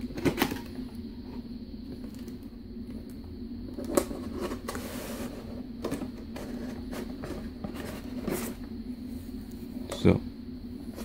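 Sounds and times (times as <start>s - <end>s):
steady low hum: 0.0s - 11.0s
cardboard sliding on cardboard: 4.1s - 8.6s.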